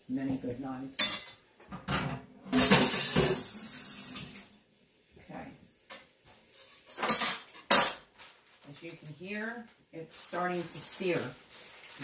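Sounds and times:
tap water running: 2.6 - 5.2.

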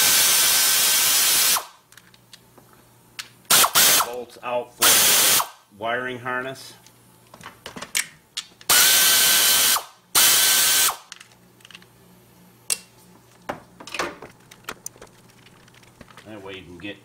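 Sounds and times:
pneumatic air ratchet whining: 0.0 - 1.7, 3.5 - 4.2, 4.8 - 5.6, 8.7 - 11.1.

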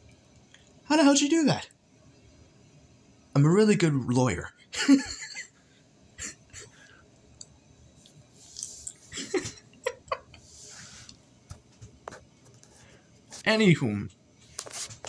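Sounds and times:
man chuckling quietly: 6.2 - 6.9, 9.0 - 10.6.

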